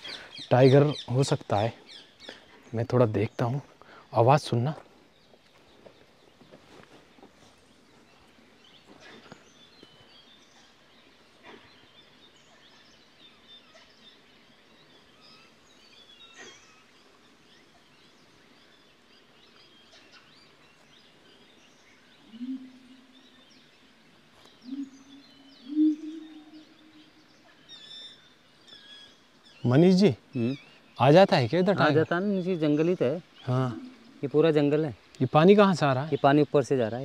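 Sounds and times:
faint bird chirps: 0.0s - 37.0s
low monkey calls: 10.6s - 12.8s, 15.2s - 17.0s, 22.2s - 23.6s, 24.5s - 30.6s, 33.3s - 34.3s.

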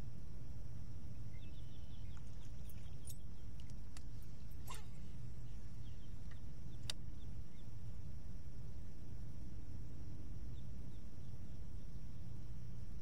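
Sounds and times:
faint high hiss: 0.0s - 13.0s
bird chirps: 1.2s - 7.8s
sharp click: 6.3s - 7.0s.

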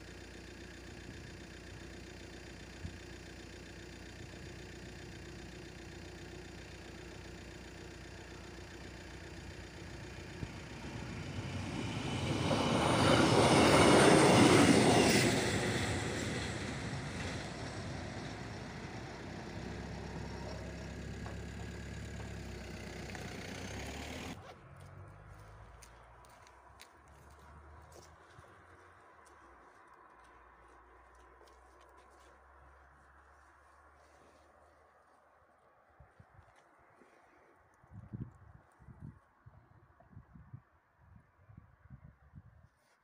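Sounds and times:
passenger train passing: 10.4s - 21.0s.

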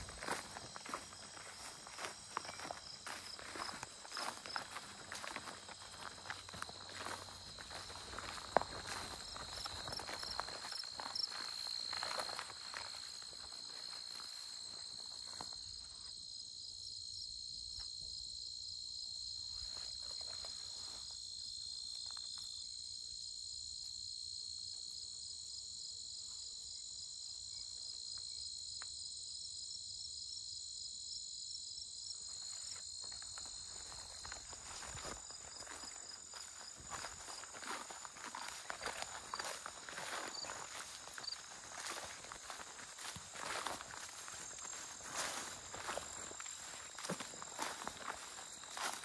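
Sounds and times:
footsteps swishing through grass: 0.0s - 14.8s, 33.8s - 49.0s
crickets and insects singing: 0.0s - 49.0s.

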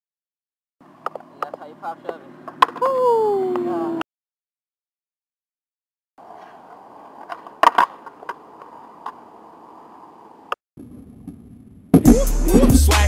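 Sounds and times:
skateboard wheels rolling on concrete: 0.8s - 2.9s, 6.2s - 12.0s
skateboard clacks: 1.0s - 2.8s, 6.4s - 9.3s.

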